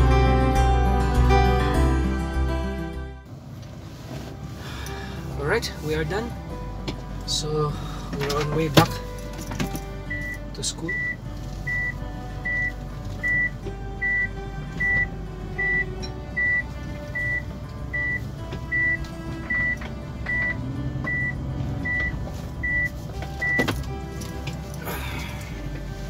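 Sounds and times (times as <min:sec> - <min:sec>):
reverse warning beeps: 0:10.1 - 0:23.6.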